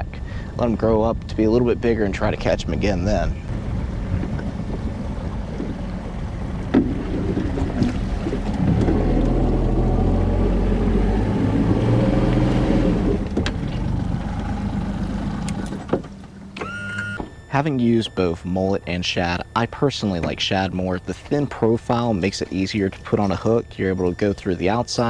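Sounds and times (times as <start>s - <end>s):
outboard motor humming: 0.0s - 25.0s.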